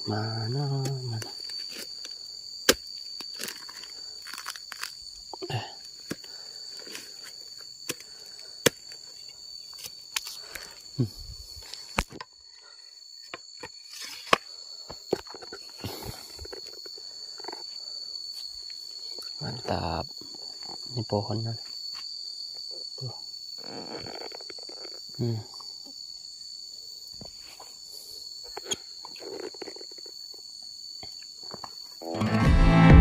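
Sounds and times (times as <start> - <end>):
high insect buzz: 0.0 - 33.0
husk cracking and snapping: 2.7 - 5.0.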